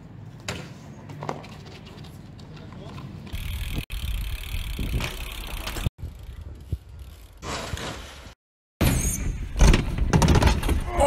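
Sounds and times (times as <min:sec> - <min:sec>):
bike tyre noise on pavement: 0:00.8 - 0:08.4
bike rattling: 0:01.2 - 0:08.4.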